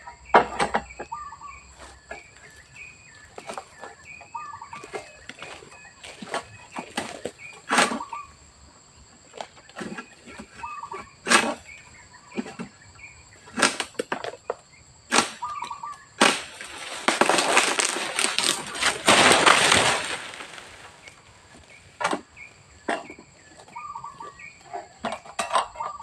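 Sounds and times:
fronds rustling as they fall: 1.8s - 8.0s, 15.2s - 22.5s
sickle chopping palm fronds: 1.8s - 8.2s, 9.3s - 12.8s, 13.4s - 14.4s, 15.1s - 25.3s.

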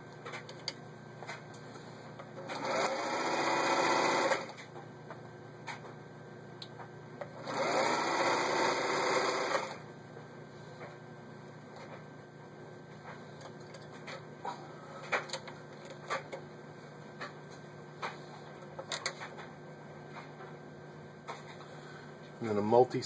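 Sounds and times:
sewing machine stitching: 2.4s - 4.6s, 7.4s - 9.8s.

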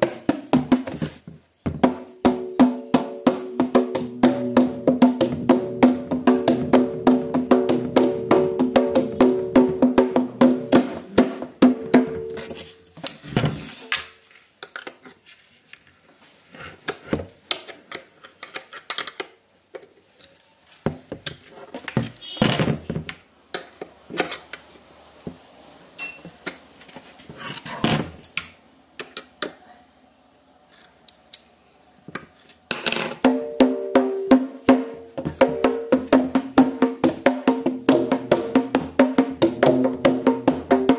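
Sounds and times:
drum stroke ringing: 1.9s - 12.9s.

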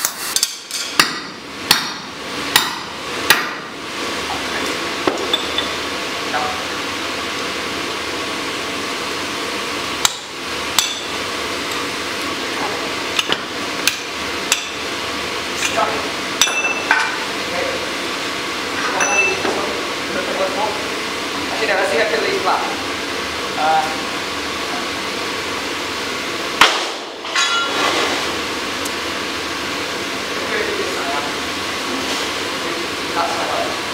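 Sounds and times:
hammer striking steel: 0.0s - 3.7s, 10.0s - 11.1s, 13.2s - 14.8s, 16.4s - 17.2s.

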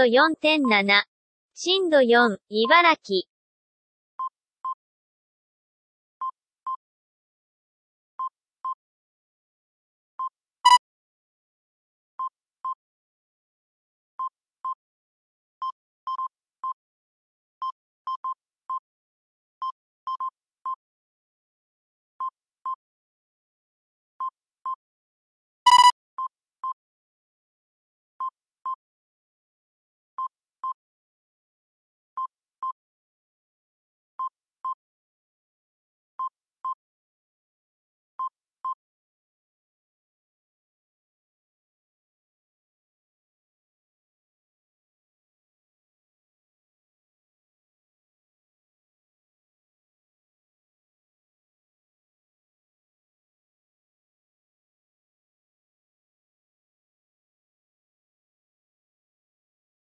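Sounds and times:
loud sharp beeps: 25.7s - 25.9s
short high electronic beeps: 25.7s - 25.9s.

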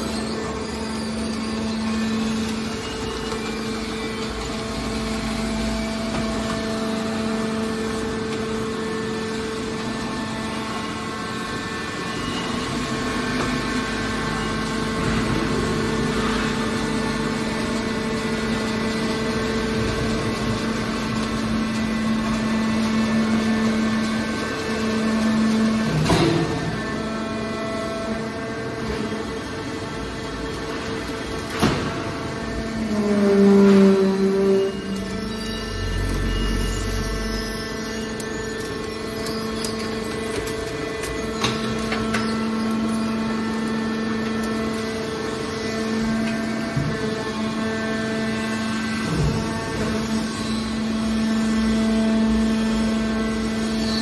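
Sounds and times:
hydraulic pump motor hum and whine: 0.0s - 54.0s.

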